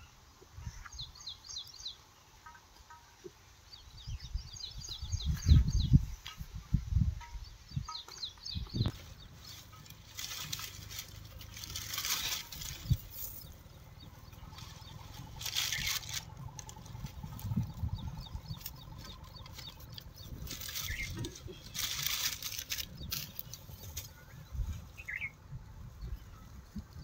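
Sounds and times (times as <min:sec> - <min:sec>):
low rumble: 0:08.7 - 0:27.0
sacking rustling and crinkling: 0:09.4 - 0:13.5, 0:14.8 - 0:16.8, 0:20.3 - 0:24.2.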